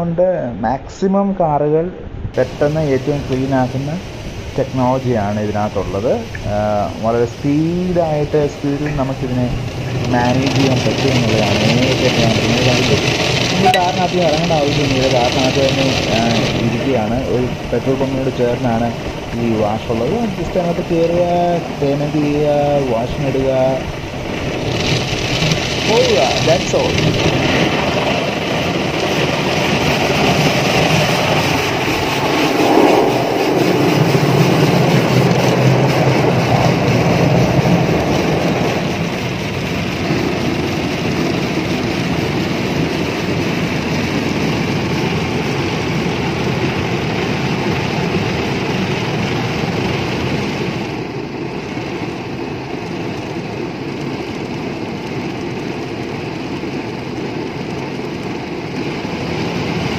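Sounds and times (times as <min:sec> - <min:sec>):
spraying water: 0:02.4 - 0:57.0
car wash brushes scrubbing: 0:02.5 - 0:50.3.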